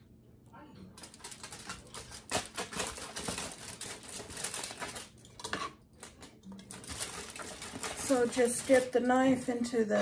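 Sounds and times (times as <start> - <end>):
knife tapping tray and foil: 1.0 - 10.0.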